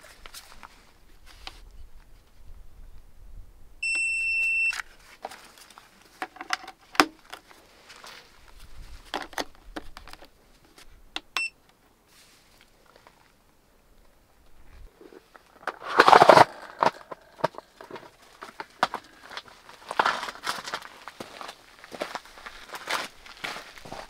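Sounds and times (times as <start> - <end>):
electronic beep: 3.8 - 4.8, 11.4 - 11.6.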